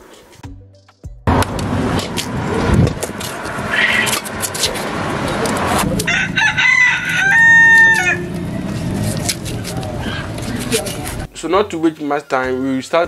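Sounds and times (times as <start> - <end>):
rooster crowing: 5.8 - 9.1, 9.8 - 10.6.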